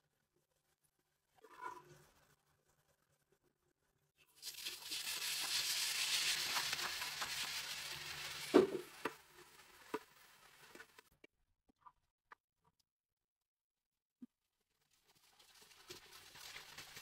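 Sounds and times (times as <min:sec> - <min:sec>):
onions sizzling in hot oil: 0:04.4 - 0:11.1, 0:15.0 - 0:17.0.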